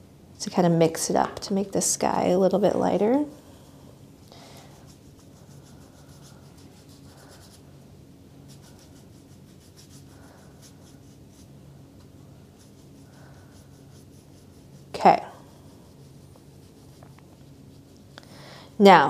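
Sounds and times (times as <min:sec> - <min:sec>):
paintbrush strokes on paper: 0:04.6 - 0:18.2.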